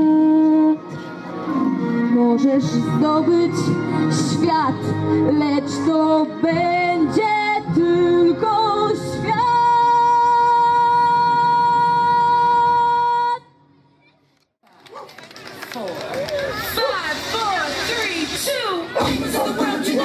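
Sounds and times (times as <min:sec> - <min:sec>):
woman singing: 0:00.0 - 0:01.0, 0:01.9 - 0:13.5
music: 0:00.0 - 0:14.1, 0:16.9 - 0:20.0.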